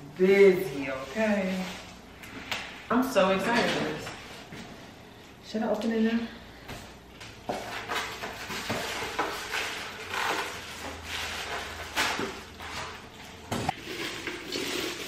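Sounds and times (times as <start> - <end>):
cardboard and plastic rustling: 7.4 - 13.7.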